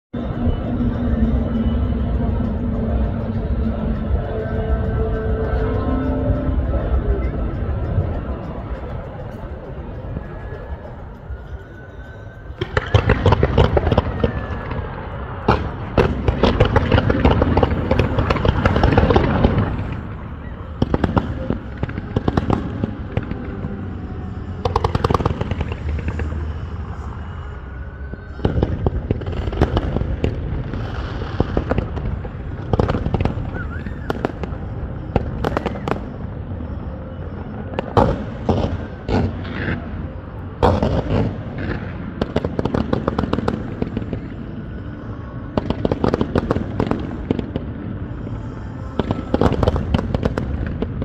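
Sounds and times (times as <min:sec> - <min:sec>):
fireworks bangs and crackling: 0:12.5 - 0:27.4, 0:28.0 - 0:51.0.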